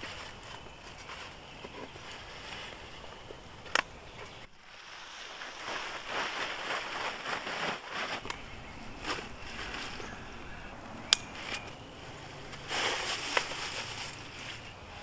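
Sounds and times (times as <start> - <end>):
fabric sack rustling: 4.4 - 10.6, 11.3 - 14.7.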